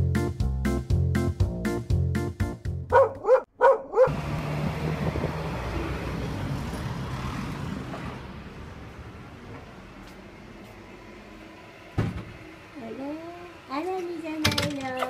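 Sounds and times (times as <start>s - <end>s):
small dog yipping: 2.9s - 4.1s.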